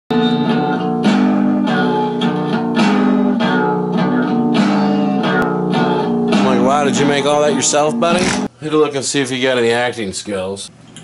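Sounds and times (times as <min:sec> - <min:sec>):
guitar chords strummed: 0:00.1 - 0:08.5.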